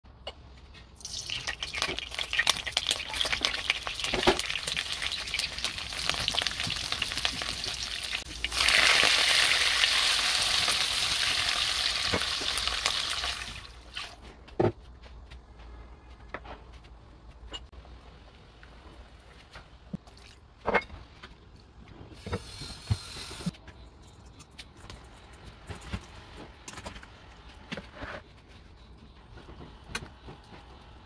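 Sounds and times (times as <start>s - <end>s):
oil sizzling in a wok: 1.0s - 14.2s.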